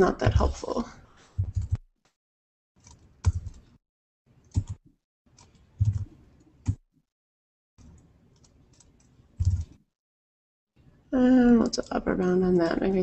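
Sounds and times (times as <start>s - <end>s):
keyboard keys clicking: 4.4s - 4.8s, 5.4s - 6.8s, 8.4s - 9.8s.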